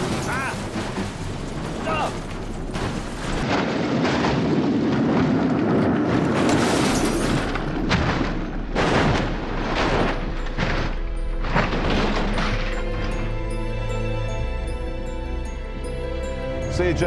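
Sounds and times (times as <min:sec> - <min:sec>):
car tumbling down rocky slope: 0:00.0 - 0:13.6
crashing metal and sliding stones: 0:00.0 - 0:14.0
heavy impacts: 0:00.0 - 0:16.3.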